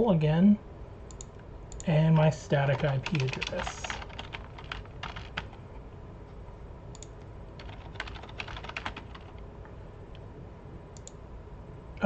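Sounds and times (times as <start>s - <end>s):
typing on computer keyboard: 2.7s - 5.6s, 7.0s - 9.3s.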